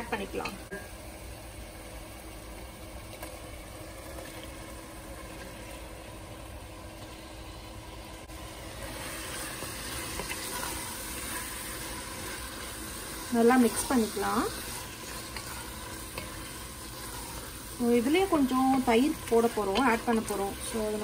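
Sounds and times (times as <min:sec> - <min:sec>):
pot simmering with soft hiss: 0:00.0 - 0:21.0
wooden spoon stirring: 0:09.3 - 0:21.0.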